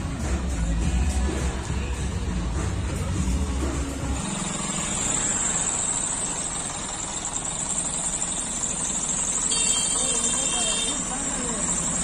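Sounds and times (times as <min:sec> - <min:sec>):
background music: 0:00.0 - 0:05.3
bus engine idling: 0:00.0 - 0:12.0.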